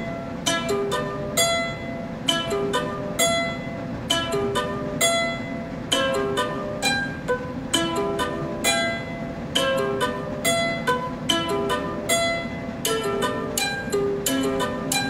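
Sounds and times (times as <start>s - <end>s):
light plucked tune: 0.0s - 15.0s.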